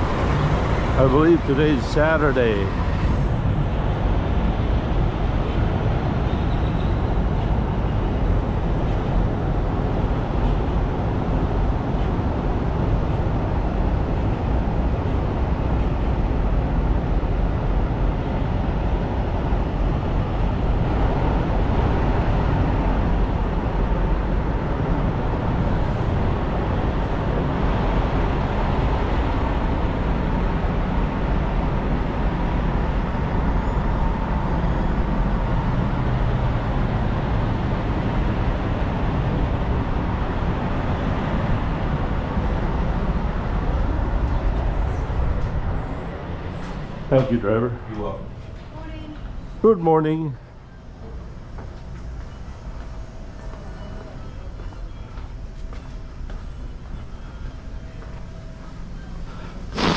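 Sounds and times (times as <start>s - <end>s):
diesel trucks idling: 0.0s - 5.4s.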